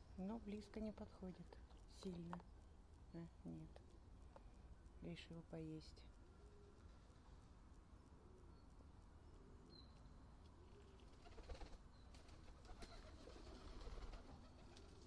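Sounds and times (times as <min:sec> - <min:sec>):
pigeons cooing: 0:10.6 - 0:15.0.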